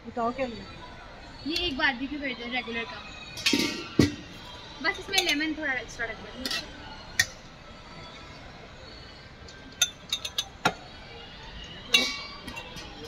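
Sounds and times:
steel spoon clinking on pot: 9.8 - 10.6, 11.9 - 13.0.

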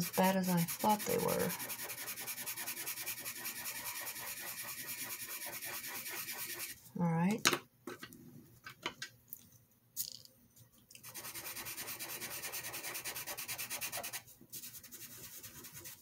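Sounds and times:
pencil scribbling on paper: 0.0 - 6.8, 11.0 - 16.0.

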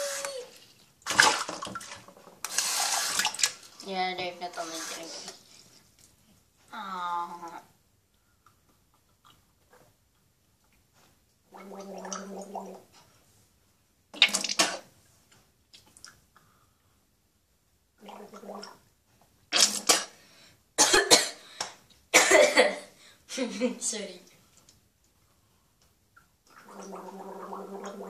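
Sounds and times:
person gargling liquid: 11.5 - 12.9, 18.0 - 18.8, 26.5 - 28.0
person coughing and spluttering: 14.2 - 14.9, 19.5 - 20.2, 20.8 - 21.4, 22.1 - 22.9.

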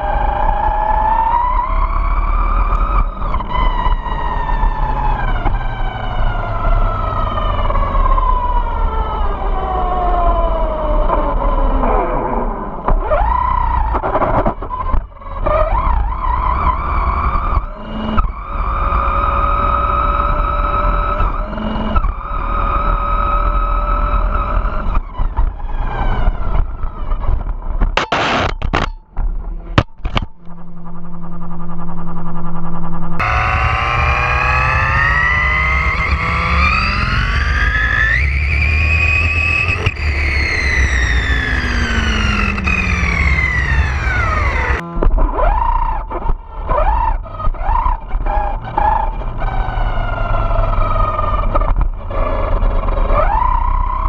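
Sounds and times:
low rumble of wind and tyres: 0.0 - 54.0
electric motor whining: 29.6 - 46.2.

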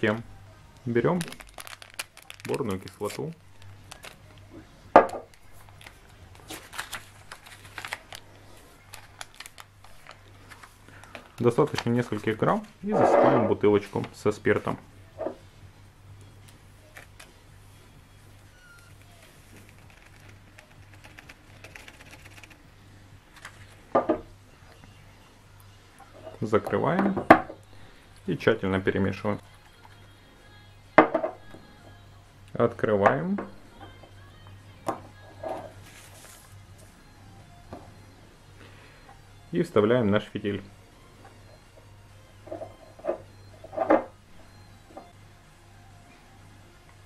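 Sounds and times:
paper sachet rustling: 0.8 - 4.4, 5.3 - 12.9, 18.6 - 22.6, 23.2 - 23.9, 35.8 - 36.6.

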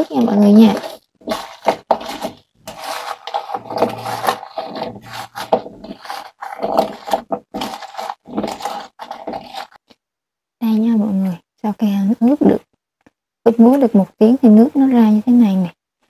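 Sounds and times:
shredded vegetables being tossed: 0.0 - 9.8.

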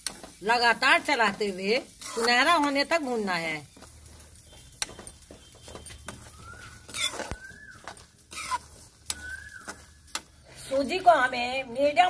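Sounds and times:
steel ladle scraping metal pan: 1.8 - 2.6, 6.9 - 7.3, 8.3 - 8.8
bird whistle: 6.0 - 7.8, 9.1 - 10.0.

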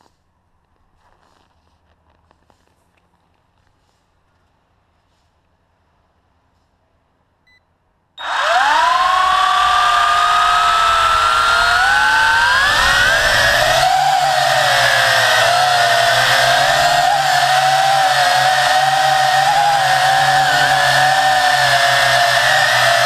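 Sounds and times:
quadcopter motors whining: 8.2 - 23.0.

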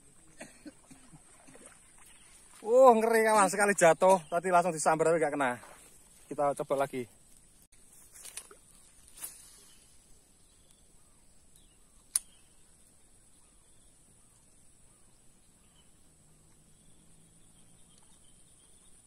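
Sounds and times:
bird chirping: 8.6 - 19.0
sharp click: 12.0 - 12.5.

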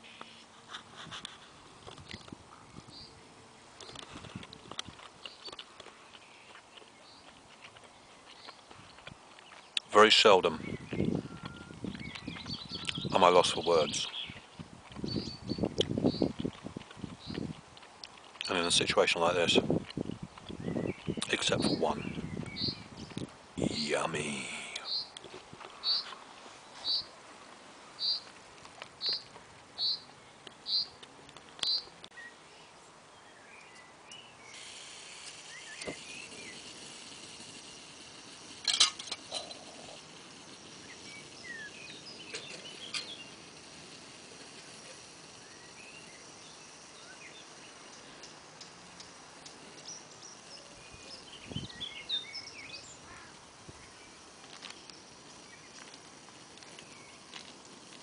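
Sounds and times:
outdoor hiss: 0.0 - 58.0
bird chirps: 10.4 - 16.3, 20.5 - 25.2, 25.8 - 26.2, 26.8 - 27.1, 28.0 - 28.3, 29.0 - 31.0, 31.6 - 32.4, 33.2 - 36.8, 40.7 - 43.6, 49.8 - 55.8.

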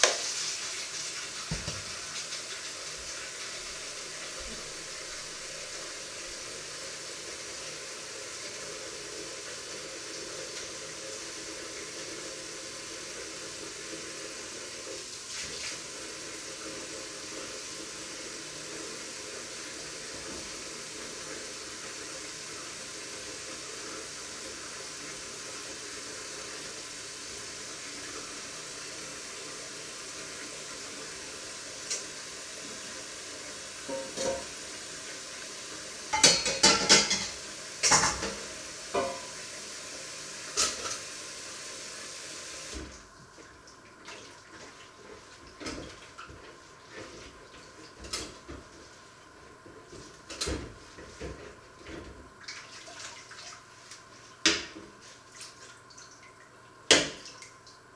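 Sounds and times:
scrubbing in sink: 0.0 - 7.4, 42.7 - 56.4
tap running water: 0.0 - 57.9
metal pots and pans clattering: 33.9 - 34.5, 36.1 - 38.4.

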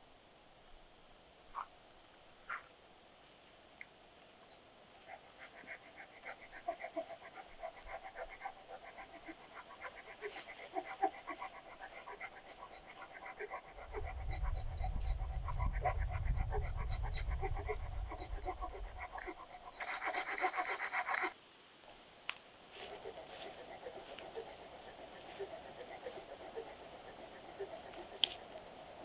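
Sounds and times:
hand saw cutting branch: 19.2 - 21.3, 22.8 - 28.6.

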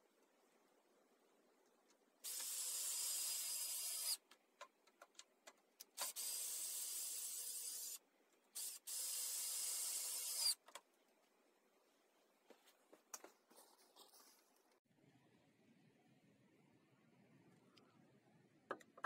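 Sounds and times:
cordless drill driving screws: 2.2 - 4.2, 6.0 - 8.0, 8.6 - 10.6.

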